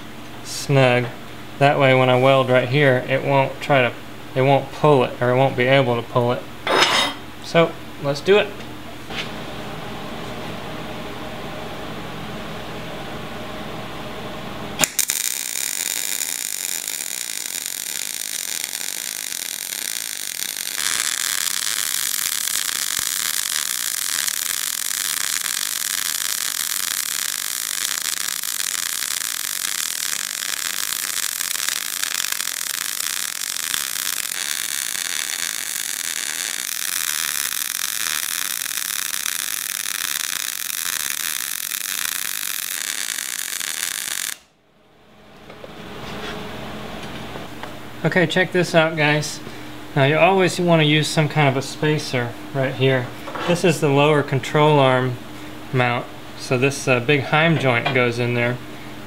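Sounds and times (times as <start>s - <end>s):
welder arc crackling and sizzling: 14.5s - 44.6s.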